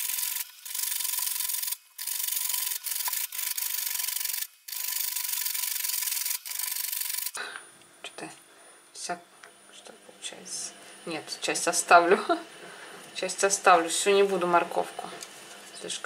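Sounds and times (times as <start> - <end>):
carrot grated on metal grater: 0.0 - 7.4.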